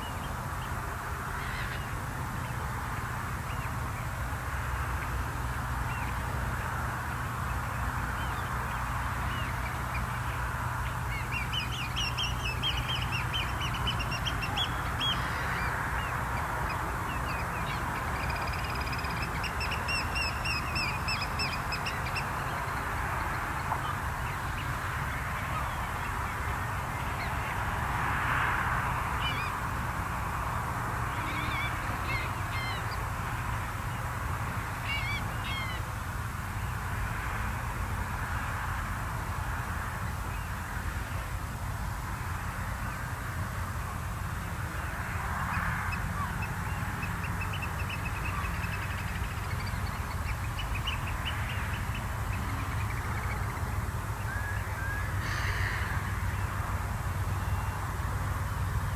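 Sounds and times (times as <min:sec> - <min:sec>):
steady background hiss: 0:00.0 - 0:58.9
shorebirds calling: 0:01.2 - 0:02.7, 0:04.7 - 0:28.0, 0:29.0 - 0:37.1, 0:45.5 - 0:58.1.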